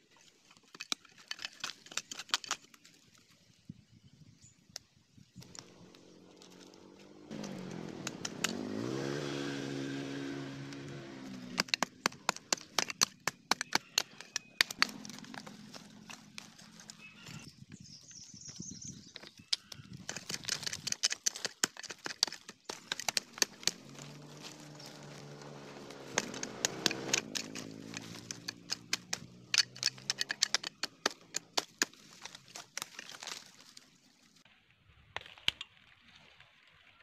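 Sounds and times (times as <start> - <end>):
metal blade chopping stony soil: 5.4 - 17.5, 19.2 - 33.8.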